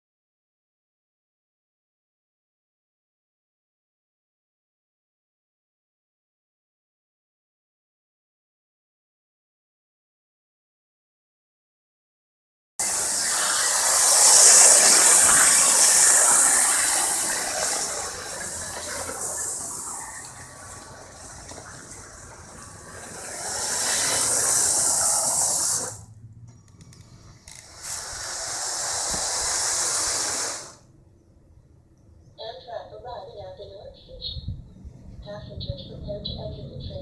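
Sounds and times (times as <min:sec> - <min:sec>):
model train hissing rush: 0:12.8 - 0:26.1, 0:26.8 - 0:30.9.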